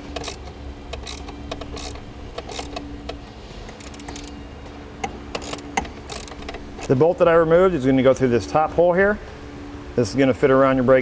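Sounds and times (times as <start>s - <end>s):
ratchet wrench clicking: 0.0s - 4.4s, 5.0s - 6.9s
faint steady hum: 0.0s - 11.0s.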